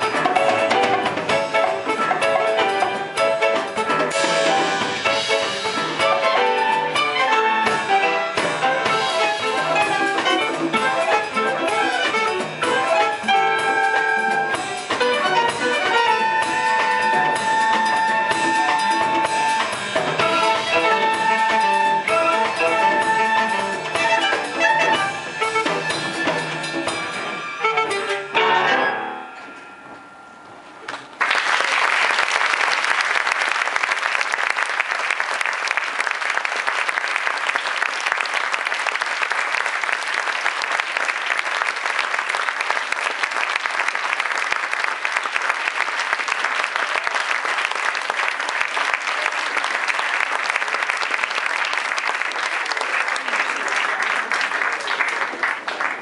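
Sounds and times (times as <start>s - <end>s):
latin jazz ensemble playing: 0.0s - 29.1s
audience applauding: 30.9s - 56.0s.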